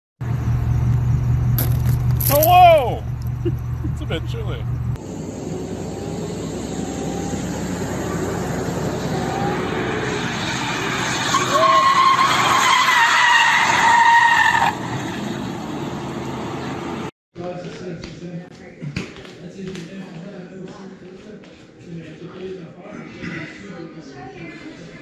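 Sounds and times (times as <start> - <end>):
car tyres squealing: 7.0 - 15.6.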